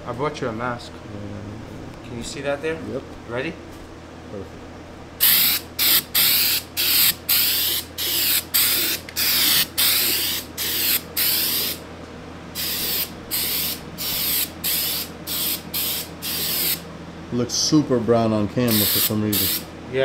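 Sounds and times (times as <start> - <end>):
aerosol can spraying bursts: 5.2 - 11.8, 12.6 - 16.8, 18.7 - 19.7.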